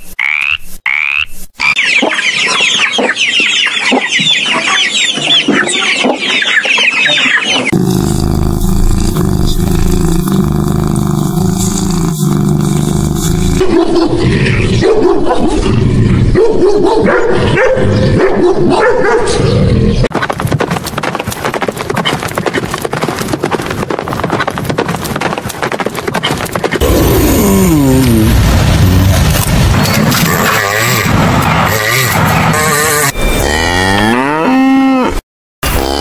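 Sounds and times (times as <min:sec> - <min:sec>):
dog barking and whining: 0:14.8 - 0:15.6, 0:16.3 - 0:19.5
fast dense crackle of clicks: 0:28.5 - 0:30.3.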